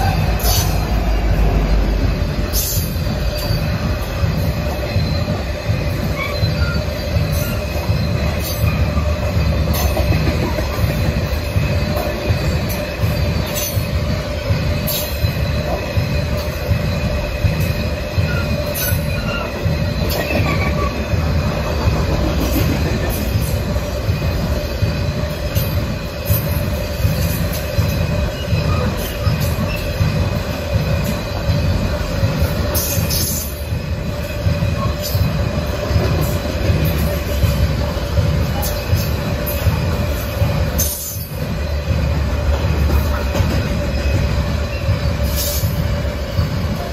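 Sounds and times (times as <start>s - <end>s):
train wheels rumbling on rail: 0.0s - 46.9s
wheels squealing against rail: 0.0s - 46.9s.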